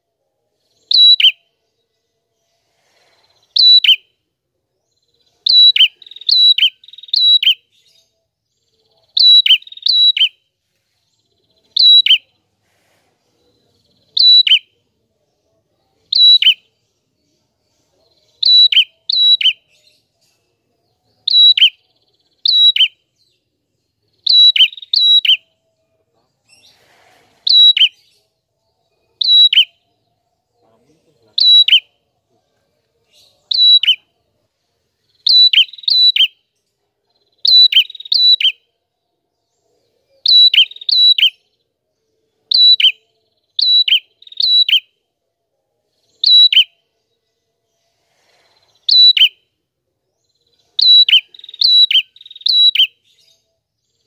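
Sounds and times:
bird calling sharp notes: 0:31.4 - 0:31.9, 0:50.8 - 0:52.9.

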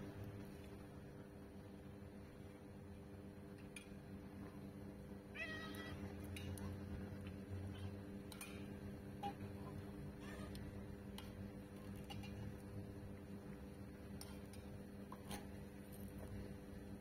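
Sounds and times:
cat meowing: 0:05.3 - 0:06.0.

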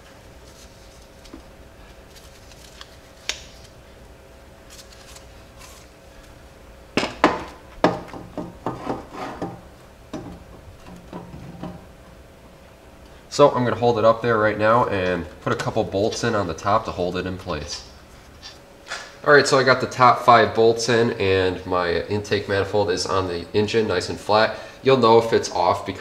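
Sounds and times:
metal clunks and knocks: 0:07.0 - 0:11.9.

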